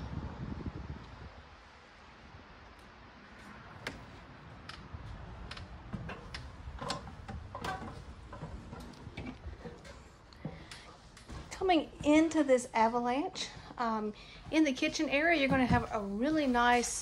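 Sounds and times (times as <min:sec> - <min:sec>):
footsteps on metal steps: 0:03.4 - 0:17.0.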